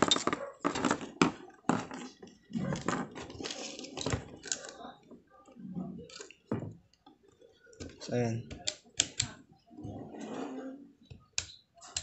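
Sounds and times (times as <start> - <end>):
knocks clicks and scrapes on plastic: 0.0 - 4.8.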